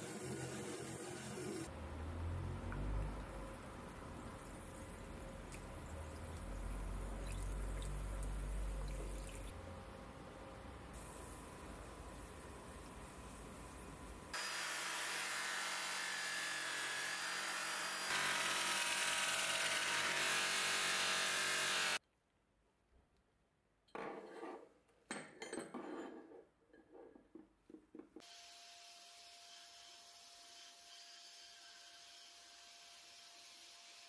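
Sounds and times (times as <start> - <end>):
bench grinder grinding steel: 14.4 - 22.0.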